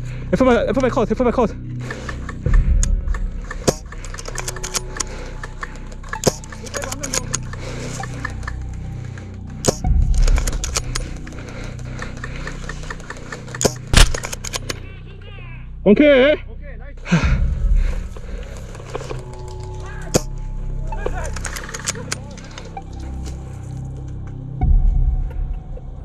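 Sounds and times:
gear clattering: 2.0s - 14.8s, 21.1s - 23.4s
dull low thumps: 2.4s - 4.0s, 17.2s - 18.6s.

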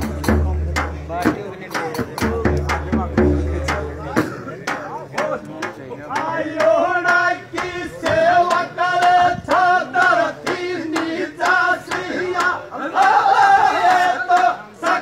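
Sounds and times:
frame drum beat: 0.0s - 12.6s
men singing together: 6.1s - 15.0s.

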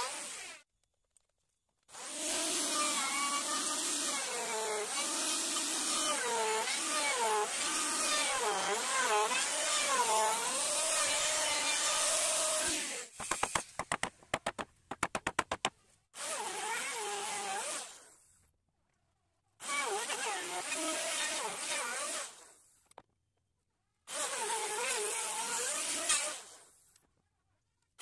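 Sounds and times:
electric router cutting wood: 2.0s - 13.0s.

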